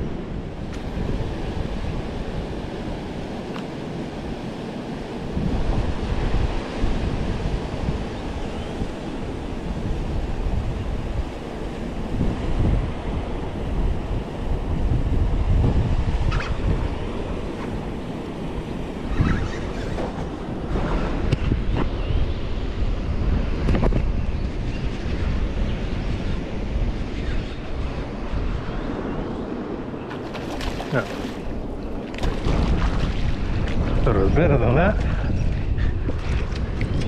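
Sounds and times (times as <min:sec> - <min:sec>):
wind buffeting microphone: 0:00.0 - 0:37.0
moving water: 0:29.8 - 0:34.2.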